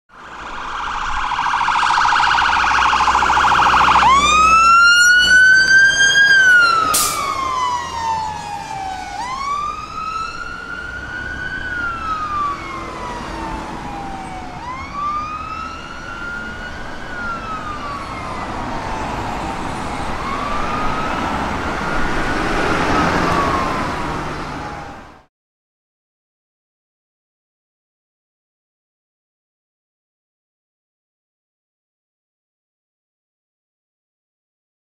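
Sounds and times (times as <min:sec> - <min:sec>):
fire engine siren: 0:00.1 - 0:25.3.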